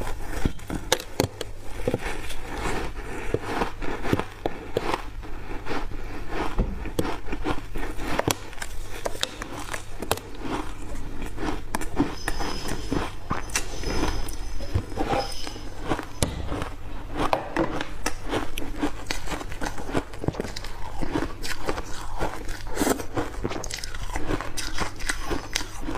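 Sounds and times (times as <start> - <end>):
ice crunching while chewed: 0.0 - 25.9.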